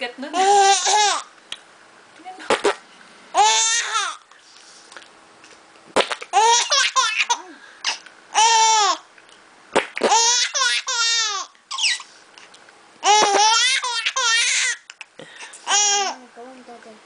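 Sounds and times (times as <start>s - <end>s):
baby laughing: 0.3s - 1.3s, 3.4s - 4.3s, 6.2s - 9.1s, 9.8s - 12.1s, 13.0s - 16.2s.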